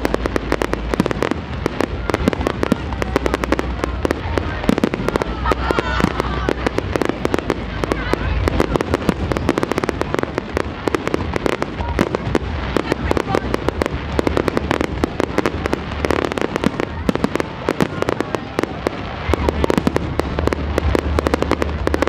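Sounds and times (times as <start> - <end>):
fireworks bursts and crackling bangs: 0.0 - 22.0.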